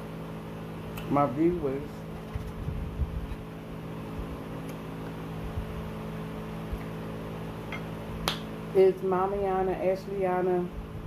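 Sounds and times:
room appliance humming: 0.0s - 11.0s.

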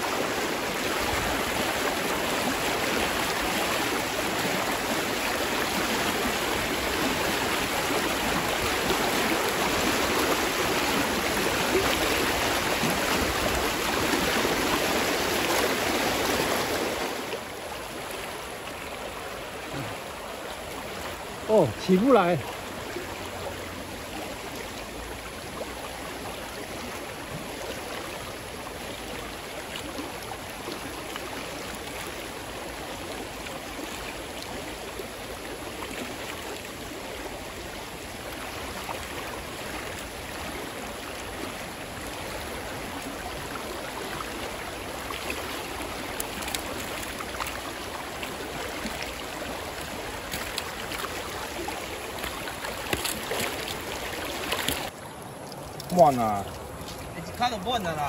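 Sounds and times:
creek rapids rushing over rocks: 0.0s - 58.0s
short clicks and splashes: 52.2s - 53.8s, 54.4s - 57.4s.

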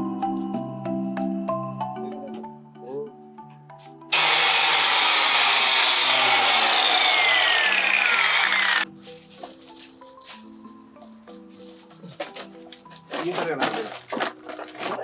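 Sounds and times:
marimba-like background music: 0.0s - 4.1s, 8.8s - 15.0s
angle grinder cutting: 4.1s - 8.8s.

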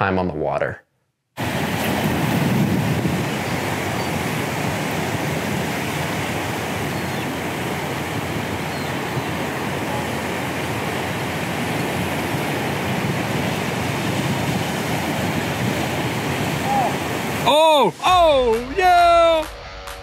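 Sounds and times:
ocean surf breaking on rocks: 1.4s - 19.5s.

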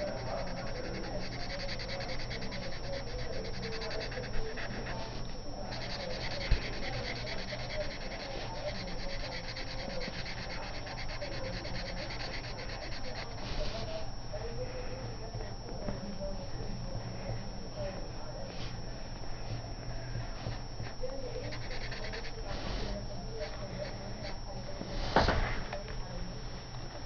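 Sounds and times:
marker scratching on paper: 0.0s - 14.1s, 20.2s - 25.0s.

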